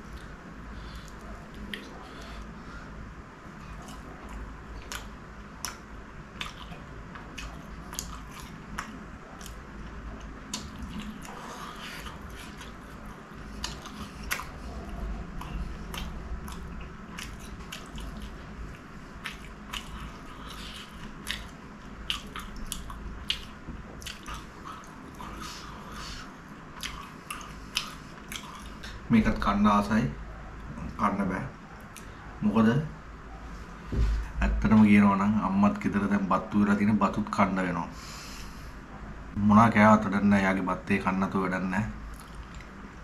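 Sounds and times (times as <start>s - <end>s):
closed-mouth chewing: 0.0s - 2.6s, 3.5s - 29.1s, 42.1s - 42.9s.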